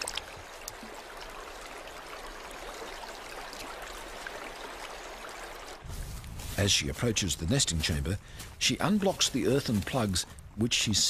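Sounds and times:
creek water rushing: 0.0 - 5.9.

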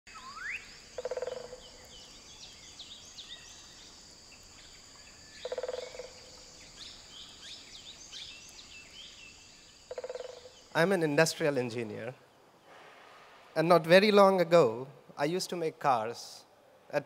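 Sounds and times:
low pulsed croaking call: 0.1 - 3.9, 4.5 - 10.8
high insect drone: 0.1 - 11.3
birds chirping: 0.1 - 12.7.

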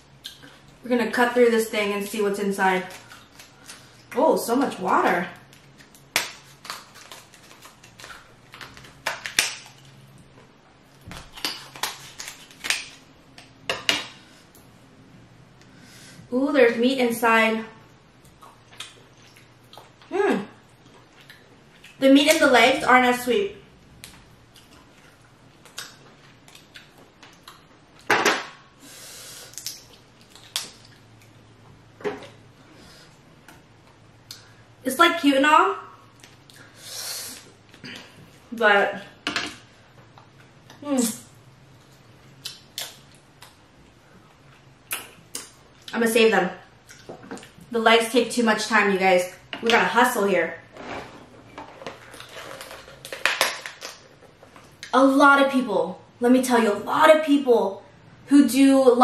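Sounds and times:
lobster shell cracking: 5.5 - 9.8.

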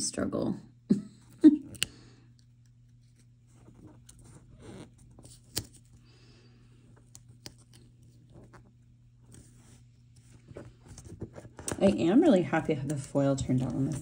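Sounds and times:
paper rustling and scratching: 7.0 - 12.0.

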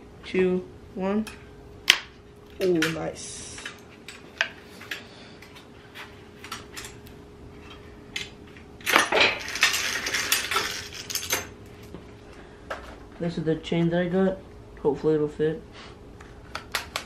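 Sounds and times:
bicycle chain links rattling: 8.9 - 11.5.

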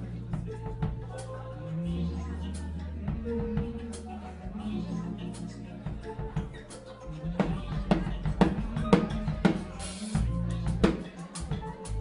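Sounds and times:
drum kit: 0.0 - 1.4, 2.5 - 4.1, 5.3 - 12.0
bass line: 0.0 - 12.0.

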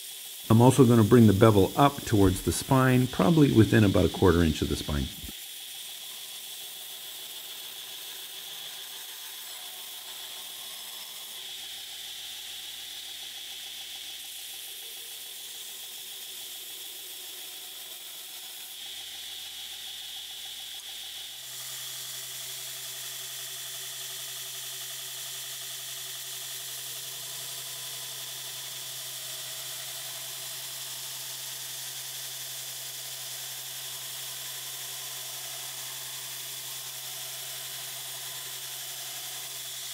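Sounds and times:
belt grinder grinding metal: 0.0 - 39.9
steady low hum: 0.5 - 5.3.

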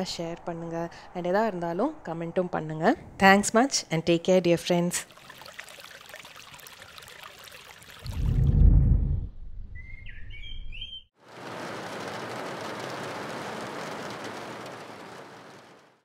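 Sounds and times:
birds chirping: 9.7 - 11.1
rain on car window: 11.2 - 16.0
car road rumble: 11.3 - 16.0.

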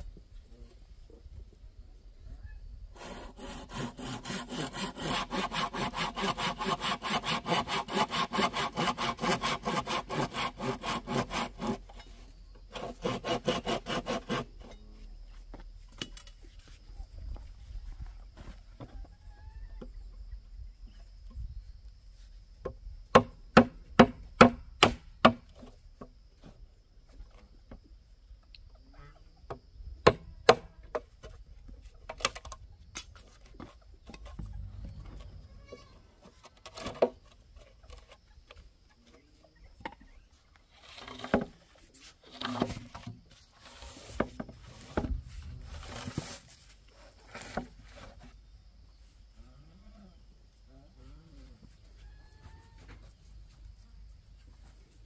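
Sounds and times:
hammer striking wood: 23.1 - 25.4
rough scraping: 33.2 - 38.4, 40.6 - 48.3.

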